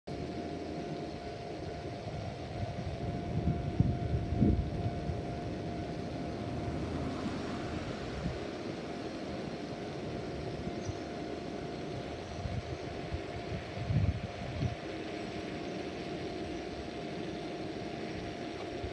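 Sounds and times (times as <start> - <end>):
funicular car hum and rumble: 2.2 - 14.8.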